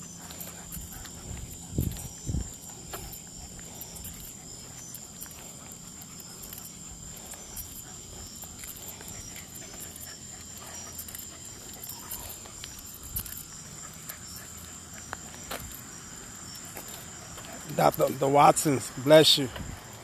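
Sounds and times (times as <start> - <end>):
footsteps on asphalt: 0.0 - 20.0
night insects trilling: 0.0 - 20.0
dog claws on asphalt: 0.2 - 15.9.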